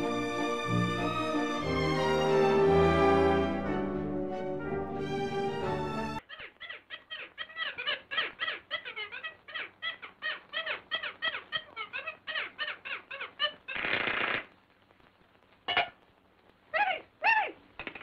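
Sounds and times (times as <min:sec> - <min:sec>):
high chattering cartoon calls: 0:06.2 - 0:14.4.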